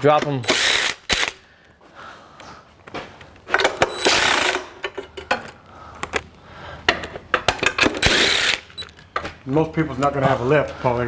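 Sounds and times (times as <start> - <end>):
impact gun running: 3.6 - 4.7, 7.8 - 8.9.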